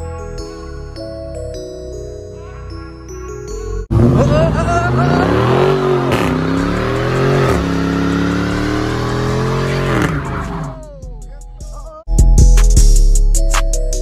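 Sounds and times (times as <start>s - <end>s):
car engine revving hard: 3.9s - 10.9s.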